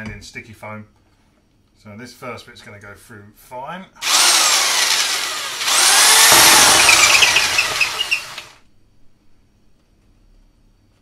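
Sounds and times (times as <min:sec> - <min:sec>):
drill boring through plasterboard: 0:04.0 - 0:08.6.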